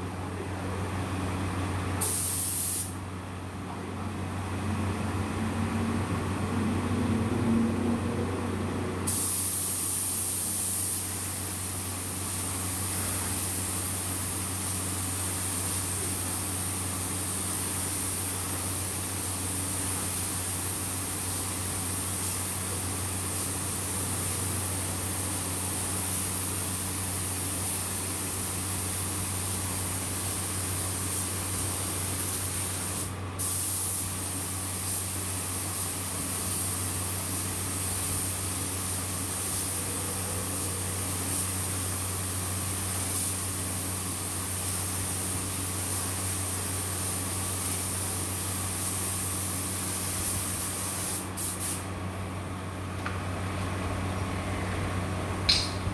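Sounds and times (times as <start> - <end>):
spray gun hissing: 2.0 - 3.0, 9.1 - 23.5, 40.4 - 51.8.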